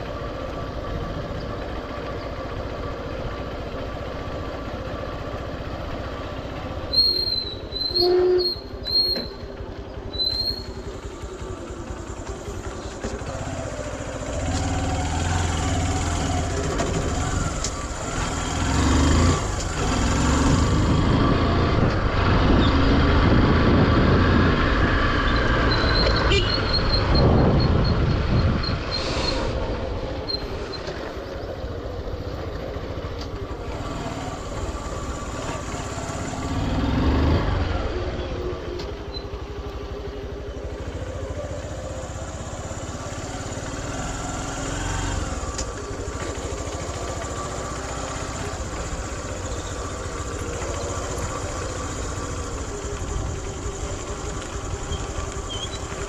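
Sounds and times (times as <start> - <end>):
motorcycle engine running: 0.0 - 56.0
wind noise: 20.8 - 25.0, 26.7 - 29.9.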